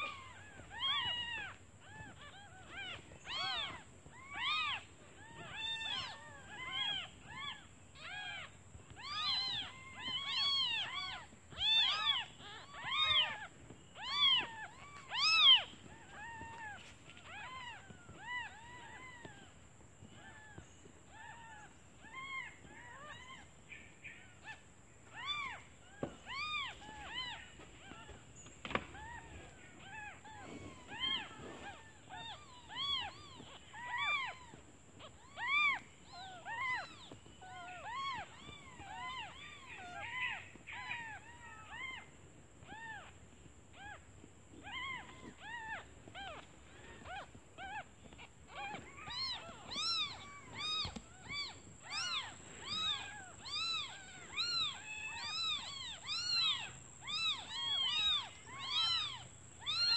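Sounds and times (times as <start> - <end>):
kittens mewing: 26.2 - 42.0, 44.6 - 59.9.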